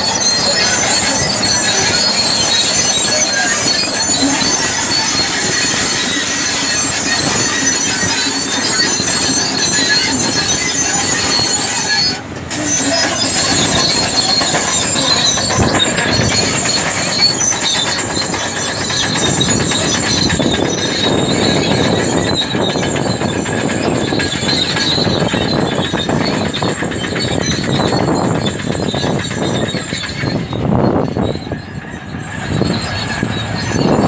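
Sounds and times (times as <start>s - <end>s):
bulldozer engine running: 0.0s - 34.0s
steel tracks squealing and clanking: 0.0s - 34.0s.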